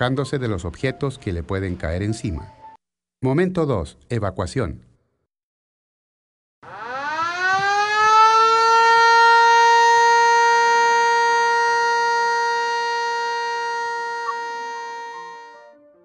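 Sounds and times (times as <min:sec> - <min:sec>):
alarm siren wailing: 0:06.6 - 0:16.0.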